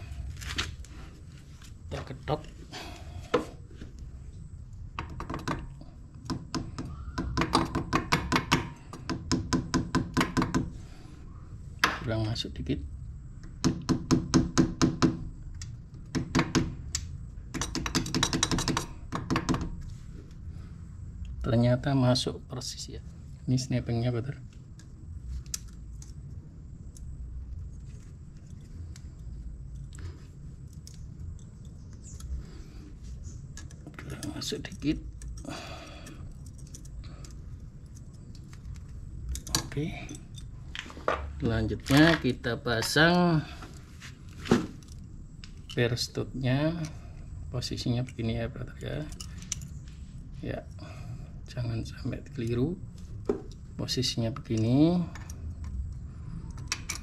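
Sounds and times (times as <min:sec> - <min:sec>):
low steady hum: 0:00.0 - 0:57.0
hammer tapping on metal: 0:17.5 - 0:19.8.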